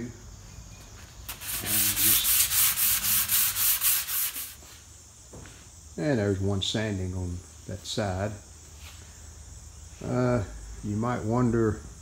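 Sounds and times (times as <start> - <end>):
hand sanding wood: 1.3 - 4.8.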